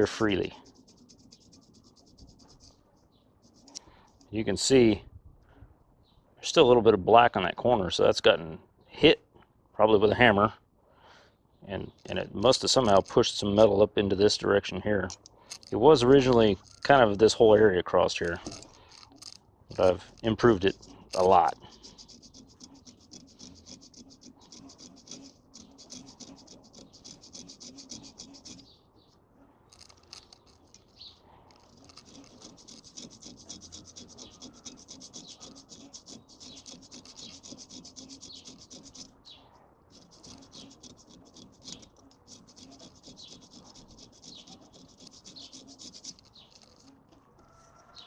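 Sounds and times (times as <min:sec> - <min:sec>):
hand file scraping metal: 0:00.0 - 0:02.8, 0:11.9 - 0:14.4, 0:15.0 - 0:28.7, 0:29.7 - 0:47.0.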